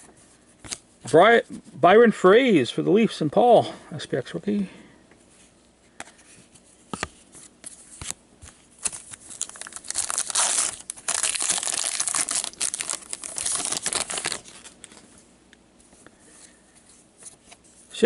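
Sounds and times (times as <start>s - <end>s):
wrapper crinkling and tearing: 8.8s - 15.0s.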